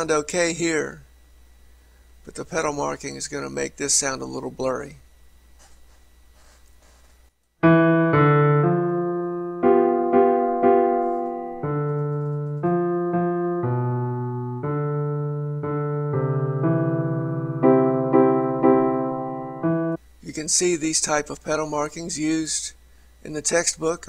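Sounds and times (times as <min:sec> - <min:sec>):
pedalled piano melody over chords: 0:07.6 - 0:20.0.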